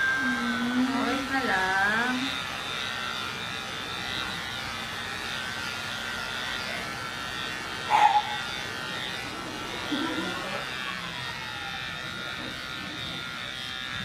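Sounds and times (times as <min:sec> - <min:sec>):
electric clippers buzzing: 0:00.0 - 0:14.0
animal crying: 0:07.9 - 0:08.6.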